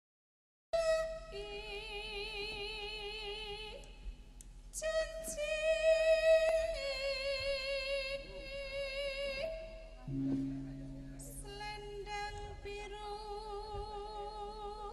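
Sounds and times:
woman singing with vibrato: 0:00.8 - 0:03.8, 0:04.8 - 0:10.6, 0:11.2 - 0:14.9
traditional ensemble music: 0:10.1 - 0:11.4.

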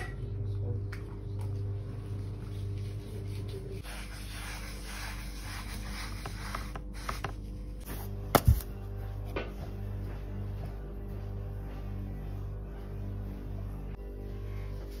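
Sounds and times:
low steady hum: 0:00.0 - 0:15.0
sponge rubbing leather: 0:02.2 - 0:07.4.

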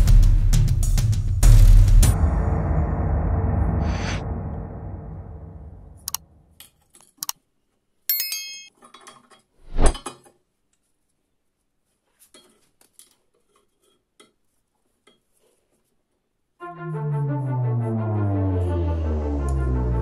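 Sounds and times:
metal clink ringing: 0:08.1 - 0:08.8.

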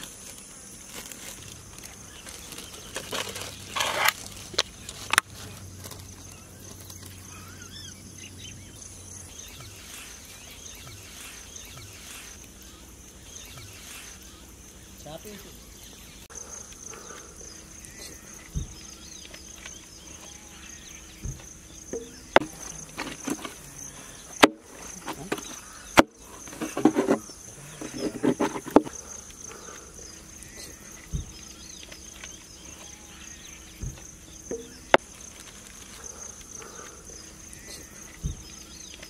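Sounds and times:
foil containers clinking and crinkling: 0:00.0 - 0:07.2
insects trilling: 0:00.0 - 0:39.0.

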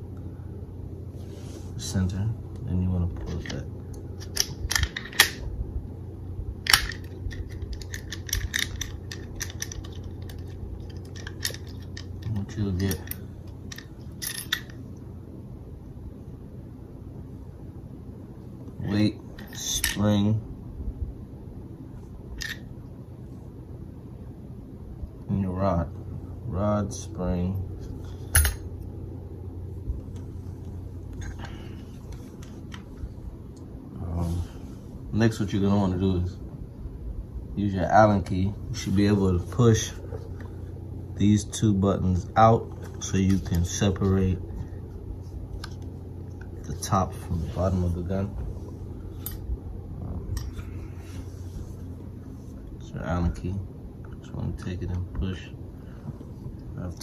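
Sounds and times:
pistol parts clicking: 0:04.2 - 0:05.4, 0:06.6 - 0:14.8.

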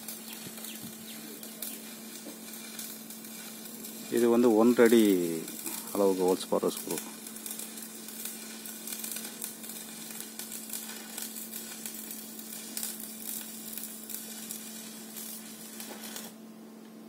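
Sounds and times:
arc welding sizzling crackle: 0:00.0 - 0:17.0.

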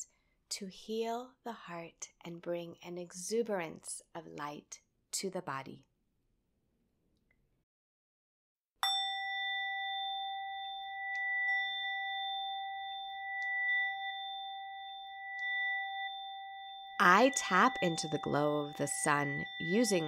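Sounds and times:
singing bowl ringing: 0:08.8 - 0:20.0.

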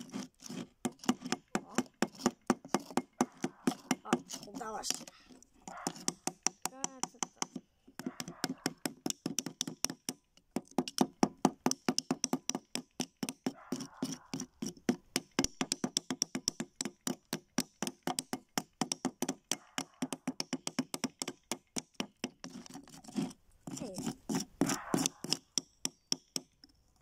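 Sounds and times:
hammers tapping chisels: 0:00.0 - 0:26.8.

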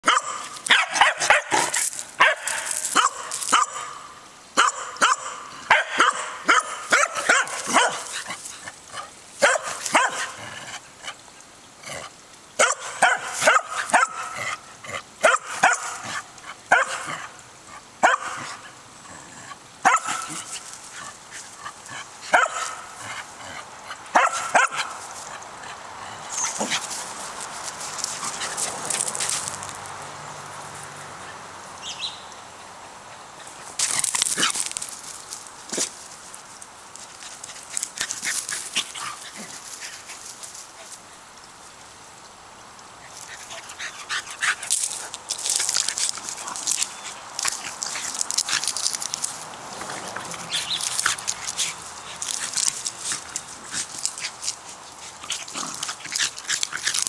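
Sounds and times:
dog barking: 0:00.0 - 0:04.0, 0:04.6 - 0:08.1, 0:09.4 - 0:10.4, 0:12.6 - 0:14.4, 0:15.2 - 0:17.2, 0:18.0 - 0:18.6, 0:19.8 - 0:20.4, 0:22.3 - 0:22.9, 0:24.1 - 0:24.9
dogs wrestling: 0:19.5 - 0:29.9, 0:33.1 - 0:36.1, 0:37.1 - 0:41.0, 0:43.1 - 0:57.0.

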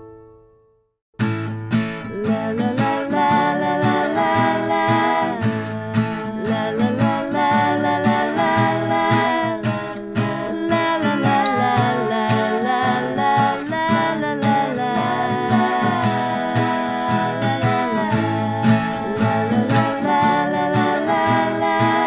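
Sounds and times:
acoustic guitar song: 0:00.0 - 0:22.0.

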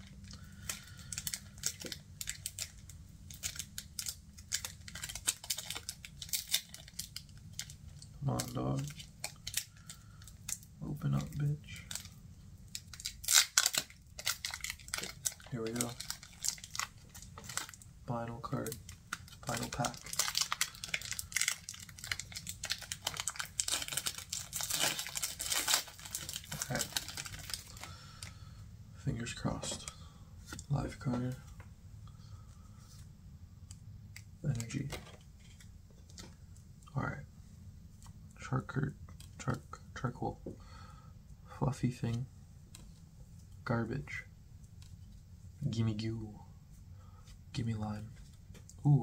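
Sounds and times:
card pack crinkling and clicking: 0:00.3 - 0:12.1, 0:12.7 - 0:17.8, 0:18.4 - 0:28.3.

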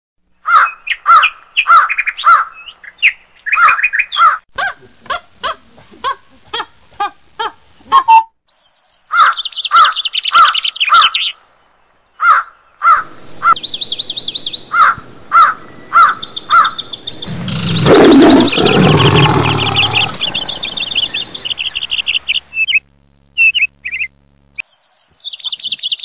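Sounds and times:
birds calling harshly: 0:00.4 - 0:04.5, 0:08.5 - 0:11.4, 0:12.2 - 0:22.8
high fast bird trill: 0:14.7 - 0:22.8.

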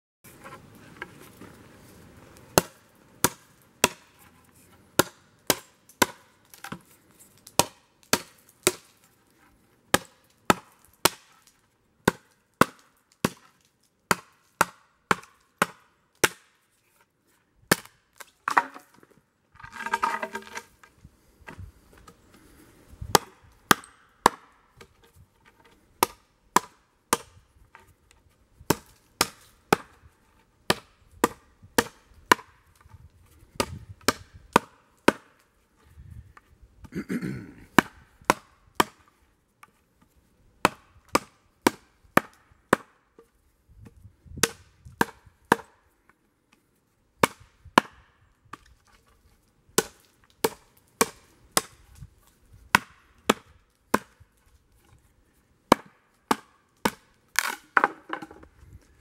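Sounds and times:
tomahawk chopping wood: 0:02.5 - 0:09.1, 0:09.9 - 0:16.6, 0:17.7 - 0:20.7, 0:23.1 - 0:25.1, 0:26.0 - 0:27.9, 0:28.7 - 0:30.1, 0:30.7 - 0:35.5, 0:36.4 - 0:39.1, 0:40.6 - 0:45.8, 0:47.2 - 0:49.0, 0:49.8 - 0:55.0, 0:55.7 - 0:58.5.

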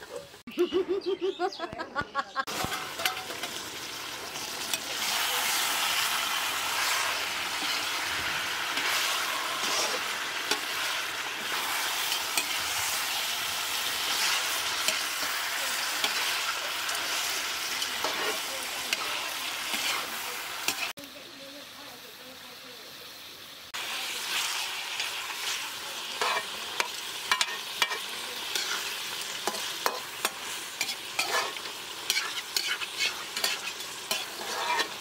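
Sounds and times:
metal ladle scraping a pan: 0:02.5 - 0:20.9, 0:26.2 - 0:35.0
curry sizzling in a wok: 0:02.5 - 0:35.0.

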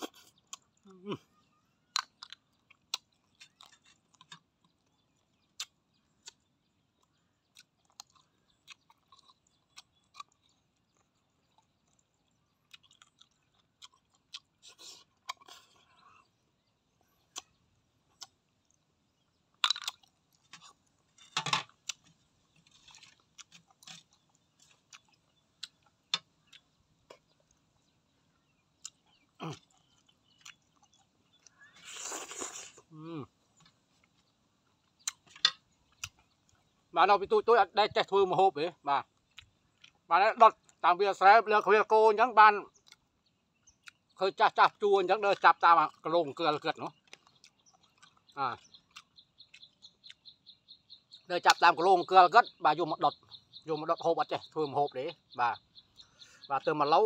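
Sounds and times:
person chewing and lip smacking: 0:00.0 - 0:16.2, 0:17.3 - 0:18.8, 0:19.5 - 0:21.1, 0:21.7 - 0:27.7, 0:28.3 - 0:36.7, 0:39.2 - 0:40.8, 0:42.8 - 0:43.0, 0:43.7 - 0:44.2, 0:46.7 - 0:50.4
mouth clicks: 0:28.8 - 0:33.3, 0:35.0 - 0:36.3
loud sucking slurps: 0:31.8 - 0:32.8.

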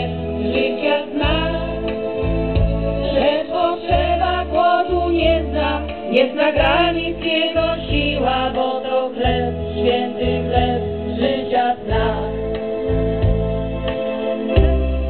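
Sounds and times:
women singing through a pa: 0:00.0 - 0:02.1, 0:03.0 - 0:12.4
instrumental backing with low bass: 0:00.0 - 0:15.0.

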